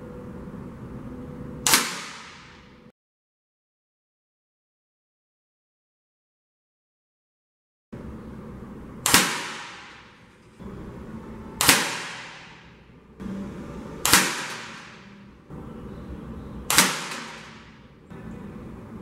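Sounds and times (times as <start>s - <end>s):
air rifle shots: 1.6s - 2.7s, 9.0s - 10.2s, 11.6s - 12.8s, 14.0s - 15.1s, 16.7s - 17.8s.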